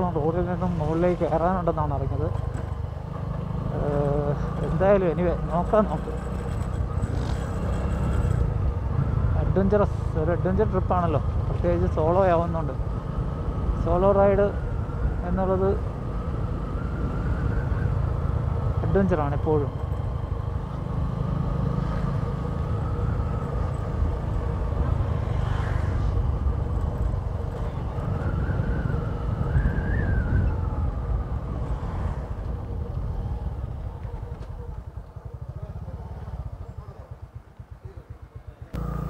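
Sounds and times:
motorcycle engine running: 0.0s - 14.7s, 32.4s - 39.0s.

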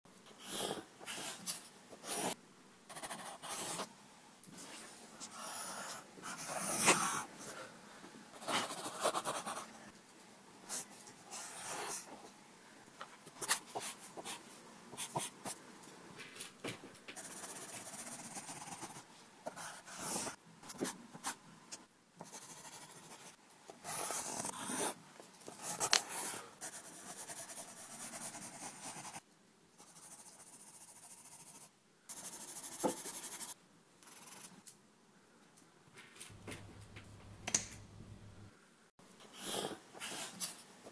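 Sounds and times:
pencil scratching on paper: 0.4s - 3.9s, 5.2s - 7.3s, 8.4s - 9.8s, 10.7s - 12.2s, 17.2s - 21.4s, 22.2s - 29.2s, 29.8s - 34.6s, 39.3s - 40.5s.

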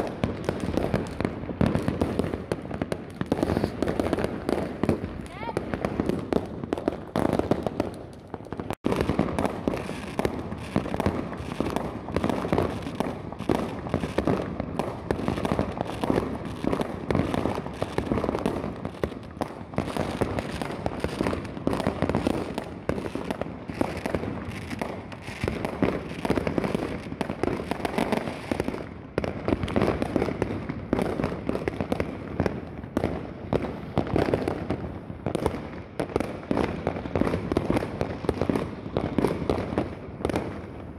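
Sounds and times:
fireworks and firecrackers exploding: 0.0s - 40.9s.

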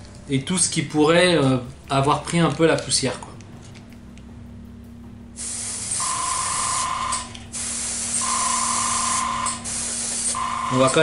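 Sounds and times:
low steady hum: 0.0s - 11.0s
hissing paint spray bursts: 5.4s - 11.0s.

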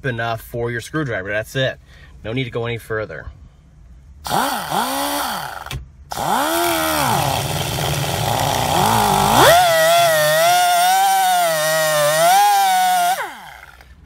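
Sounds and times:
cutoff wheel whining on steel: 4.2s - 14.0s.

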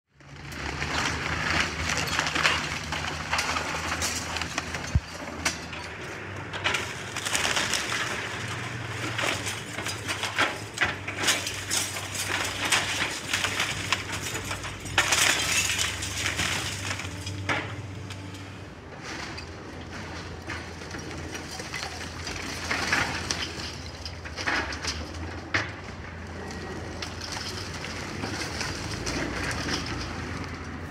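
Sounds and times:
excavator engine droning: 0.1s - 30.9s
falling debris crashing: 0.2s - 30.9s
timber cracking and splintering: 0.2s - 30.9s
glass breaking: 9.0s - 17.4s.

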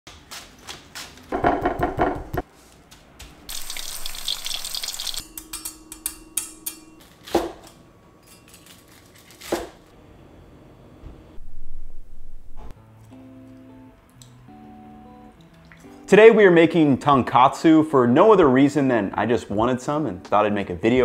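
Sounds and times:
knife knocking on board: 1.4s - 2.4s
oil sizzling: 3.5s - 5.3s.

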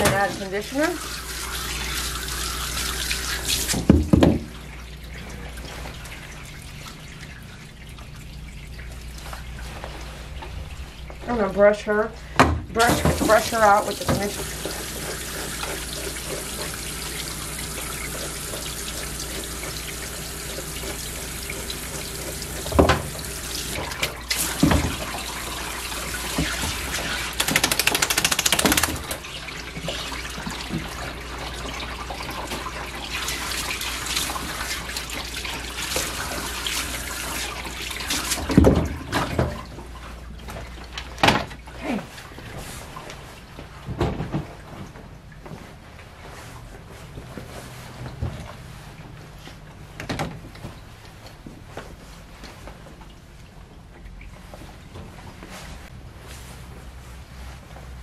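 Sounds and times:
water running in a bathtub: 0.0s - 49.7s
knocks and thumps: 3.8s - 4.5s, 12.4s - 13.4s
rapid rattling: 27.4s - 29.1s.

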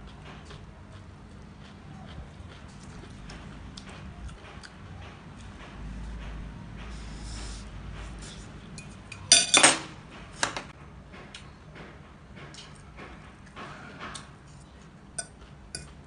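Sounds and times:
eating sounds: 0.0s - 5.6s
cutlery clinking on plate: 8.8s - 9.9s.

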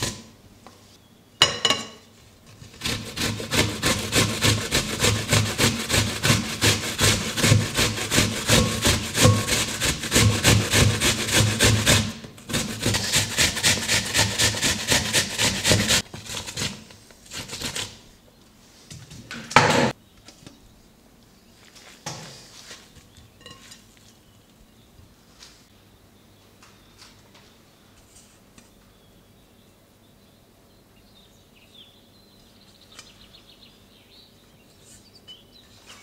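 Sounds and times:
apple rasping on a grater: 2.5s - 18.0s.

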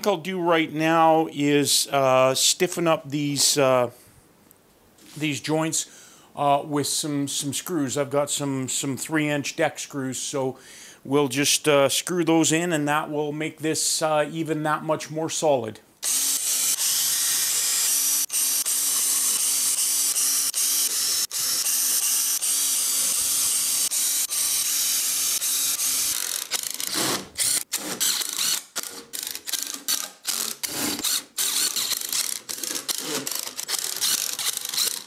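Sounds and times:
cordless driver driving screws: 16.0s - 35.0s.

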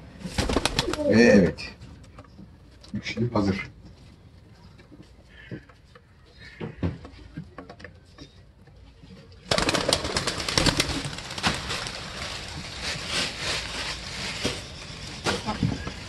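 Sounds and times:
pigeon wings flapping: 0.2s - 1.2s, 9.4s - 12.8s.

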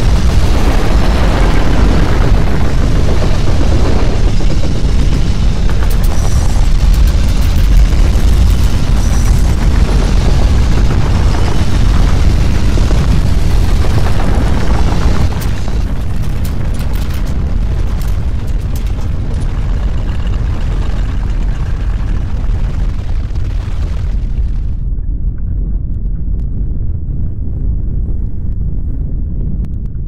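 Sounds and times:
sharp clicks and rattles: 0.0s - 23.5s
deep earthquake rumble: 0.0s - 30.0s.

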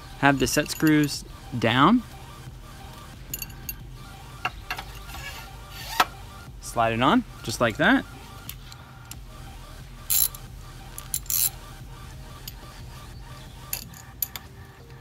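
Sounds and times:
steady low hum: 0.0s - 15.0s
clicks taps and scrapes of metal parts: 4.4s - 5.2s, 13.7s - 15.0s
ratchet clicking: 10.1s - 11.6s.

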